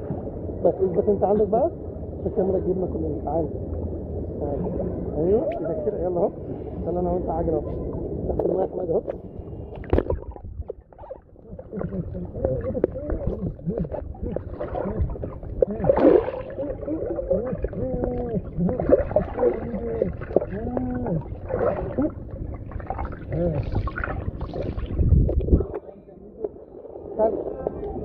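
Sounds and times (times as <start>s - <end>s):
muffled underwater churning: 3.5s - 28.0s
scattered underwater knocks: 9.8s - 25.8s
warbling muffled tones: 9.8s - 28.0s.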